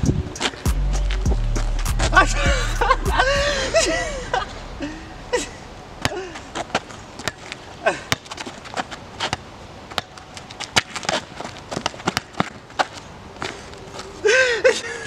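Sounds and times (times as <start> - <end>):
rubber ball bouncing on asphalt: 11.7 - 12.6.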